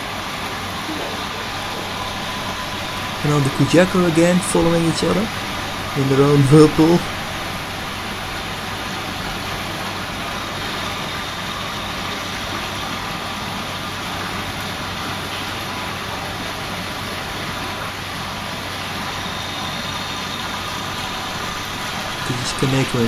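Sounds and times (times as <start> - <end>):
low steady hum: 0.7 - 9.4, 20.6 - 23.0
water pouring from pipe: 6.6 - 22.6.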